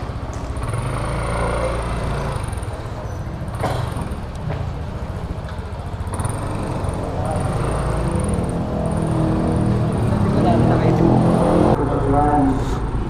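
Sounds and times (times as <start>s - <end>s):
scooter engine running: 0.0s - 11.8s.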